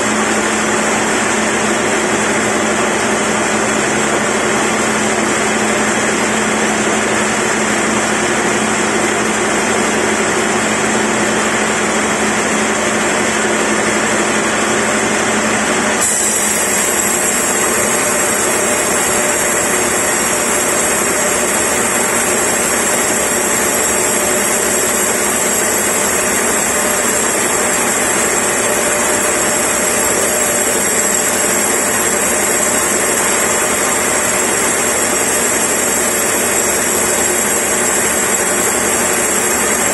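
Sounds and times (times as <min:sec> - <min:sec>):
band saw cutting timber: 0:14.0 - 0:39.9.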